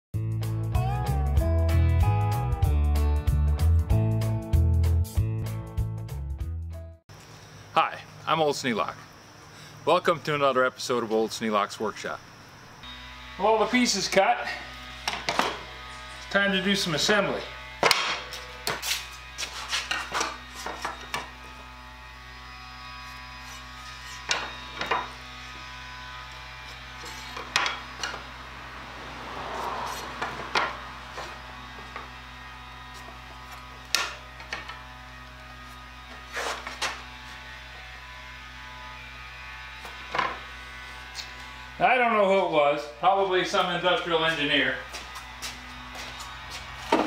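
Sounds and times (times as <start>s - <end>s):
boards and clamps knocking on workbench: 15.1s - 15.6s, 17.8s - 18.8s, 24.3s - 25.1s, 27.4s - 28.2s, 30.2s - 30.8s, 40.1s - 40.4s
wood scraping: 17.8s - 21.4s, 22.8s - 25.3s, 26.4s - 28.4s, 29.3s - 32.2s, 35.6s - 37.4s.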